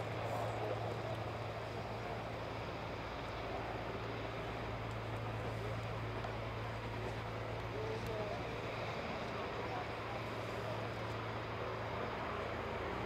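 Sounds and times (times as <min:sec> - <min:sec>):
propeller plane engine drone: 0:00.0 - 0:13.0.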